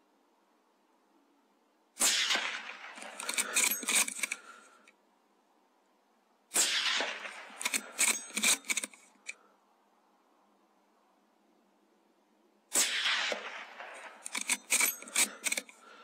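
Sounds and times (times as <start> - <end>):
rifle shots: 2.0 - 4.6, 6.5 - 8.9, 12.7 - 15.7
rifle bolt clicking: 3.0 - 4.4, 7.6 - 9.4, 14.0 - 15.8.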